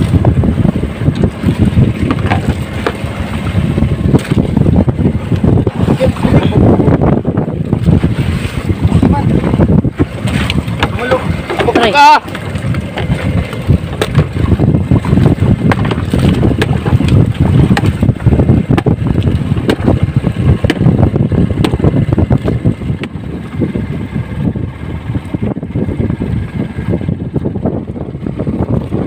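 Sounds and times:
water splashing at hull: 0.0 - 29.0
wind buffeting microphone: 0.0 - 29.0
knocks against bamboo: 15.6 - 18.0, 19.6 - 19.9, 20.6 - 20.9, 21.6 - 21.9.

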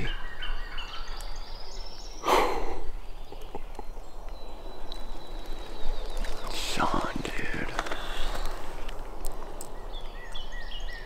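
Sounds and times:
person exhaling: 2.2 - 2.9.

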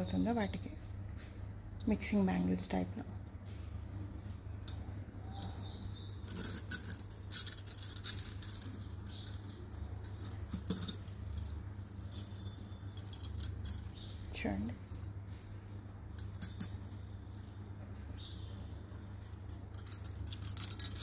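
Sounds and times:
bangles clinking and jingling: 4.6 - 21.0.

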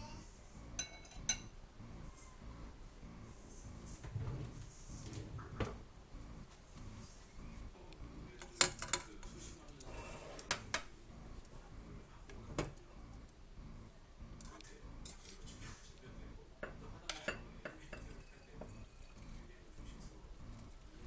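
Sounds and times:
metal tongs clinking on steel pot: 0.8 - 1.5.

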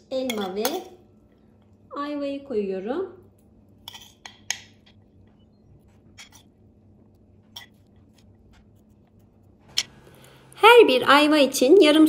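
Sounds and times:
metal spoon clinking and scraping: 0.2 - 0.9, 3.8 - 5.0, 6.2 - 6.6, 7.5 - 8.2.

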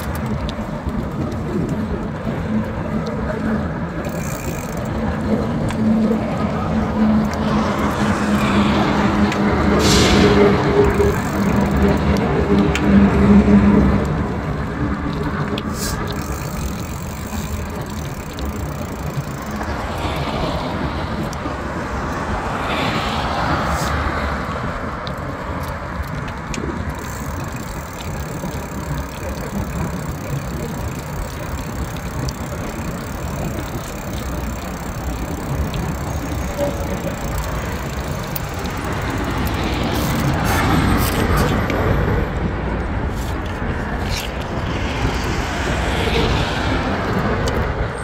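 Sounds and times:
road traffic: 0.0 - 48.0
faint clicks: 13.9 - 20.6, 25.0 - 41.8.

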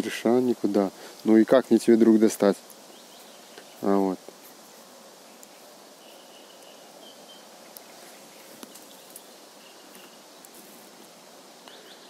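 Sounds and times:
faint steady hiss: 0.0 - 12.0
small ticks: 2.6 - 6.8, 7.6 - 10.8
faint high chirps: 5.3 - 10.6.

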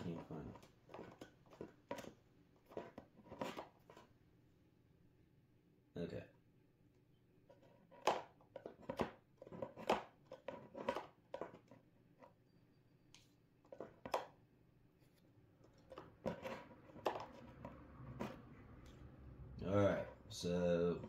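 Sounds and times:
rummaging through cards: 15.0 - 18.5.

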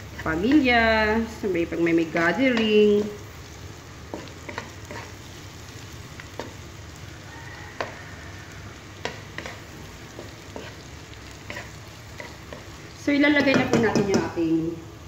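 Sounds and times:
spatula scraping and tapping pan: 0.0 - 0.8, 2.3 - 3.2, 4.0 - 5.2, 6.2 - 6.7, 7.7 - 8.0, 9.0 - 14.4
onion and garlic sizzling: 0.0 - 15.0.

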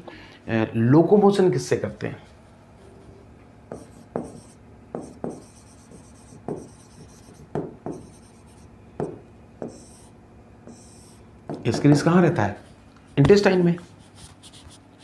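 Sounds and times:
marker writing on whiteboard: 3.7 - 14.8.

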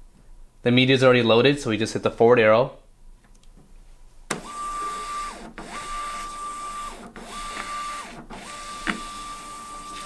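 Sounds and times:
label printer motor whine: 4.3 - 10.0.

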